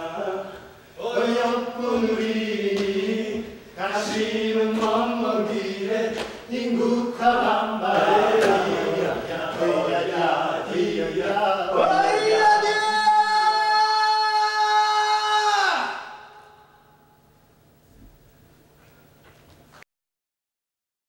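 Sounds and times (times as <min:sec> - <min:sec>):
choir singing: 0:00.0 - 0:14.3.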